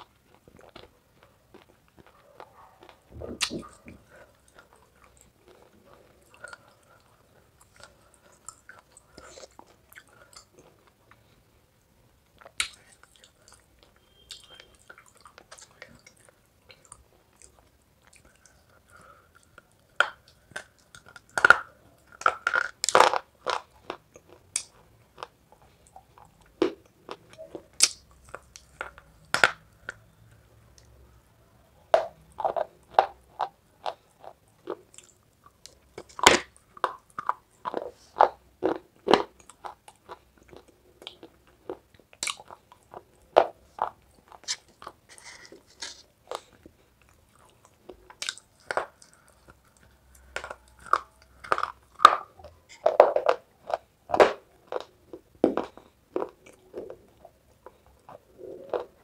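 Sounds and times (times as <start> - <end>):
crunchy chewing: 0.0 - 11.4, 32.0 - 59.0.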